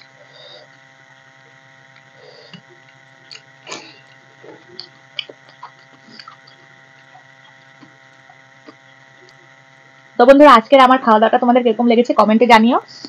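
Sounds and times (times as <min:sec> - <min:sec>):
low steady hum: 0:00.0 - 0:13.0
person chewing with smacks: 0:01.9 - 0:09.4.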